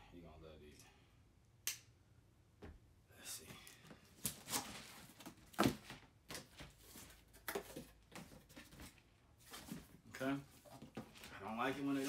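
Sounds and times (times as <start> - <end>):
box and packing paper rustling: 4.2 - 12.0.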